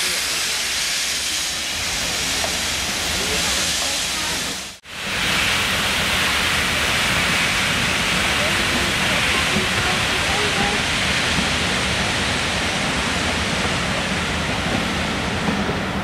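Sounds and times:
steam locomotive hissing: 0.0s - 16.0s.

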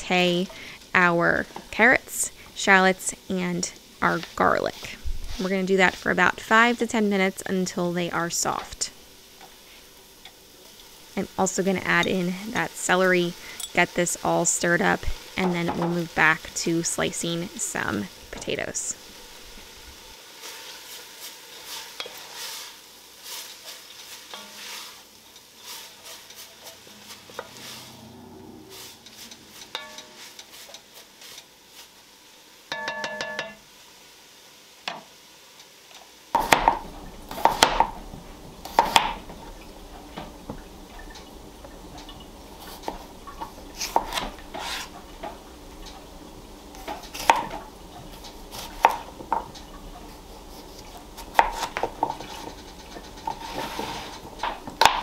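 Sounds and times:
vegetables sizzling: 0.0s - 55.0s
wooden spoon stirring vegetables in pot: 0.1s - 7.8s, 8.4s - 28.0s, 28.7s - 32.0s, 34.9s - 55.0s
knife slicing on cutting board: 43.8s - 44.9s, 50.5s - 52.4s.

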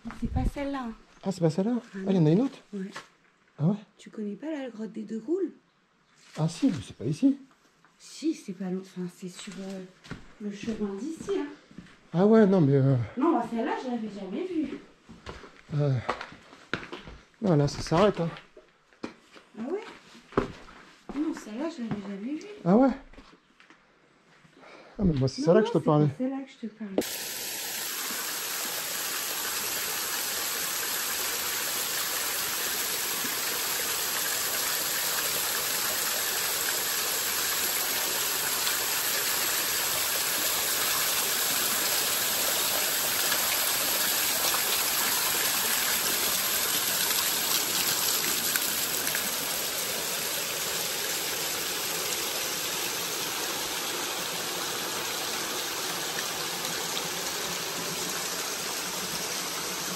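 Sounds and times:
water rushing in cascade: 27.0s - 59.9s.

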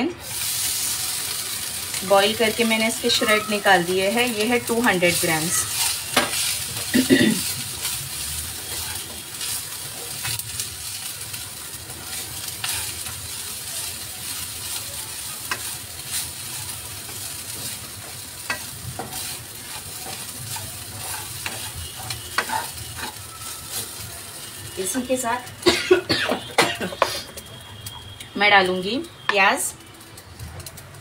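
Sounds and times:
chicken frying hiss: 0.1s - 31.0s
spatula scraping pan: 3.1s - 10.6s, 11.9s - 13.3s, 15.4s - 25.0s.

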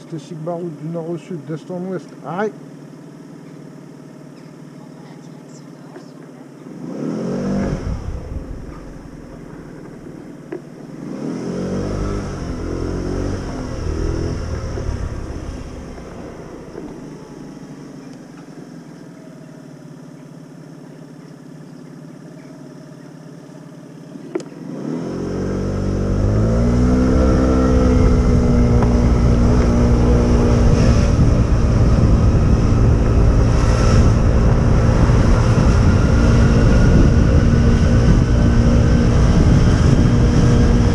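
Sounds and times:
motorbike engine revving: 6.5s - 40.9s
wind rumble on microphone: 11.8s - 17.4s, 25.6s - 40.9s.

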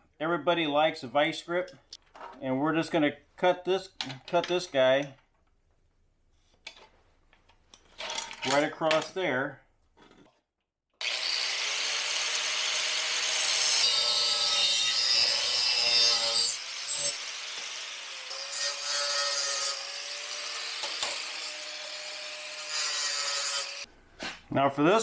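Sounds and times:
power tool cutting steel: 11.0s - 23.9s.

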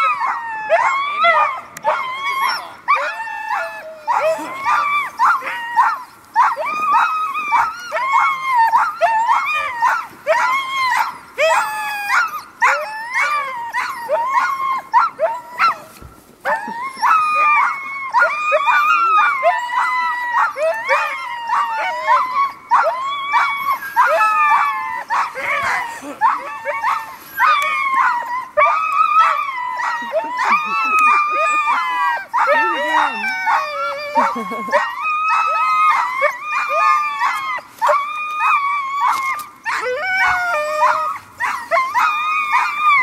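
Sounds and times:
sled dogs barking and yelping: 0.0s - 43.0s.

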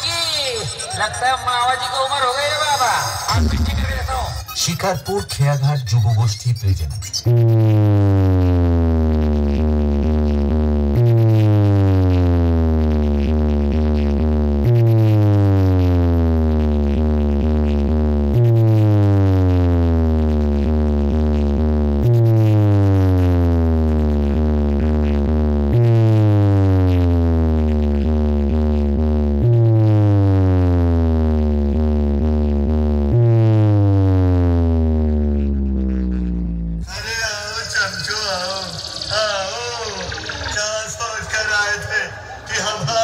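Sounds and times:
ticking pulses: 0.0s - 43.0s
downward sliding synth bass tone: 5.6s - 41.5s.

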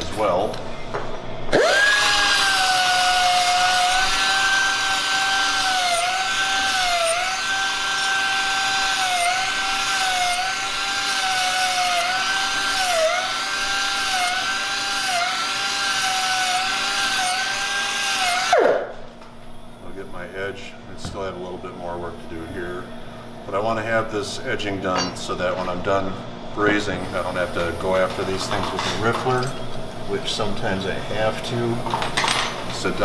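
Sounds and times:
air belt file whining: 1.5s - 18.9s.

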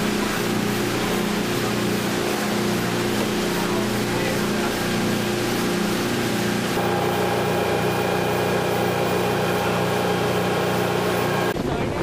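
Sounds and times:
churning boat wake: 0.0s - 12.0s
motorboat engine running: 0.0s - 12.0s
water and wind hissing: 0.0s - 12.0s.

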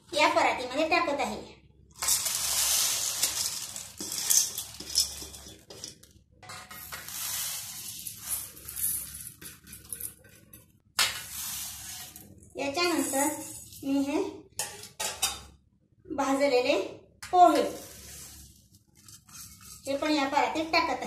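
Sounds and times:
lentils pattering onto metal: 2.0s - 7.2s.

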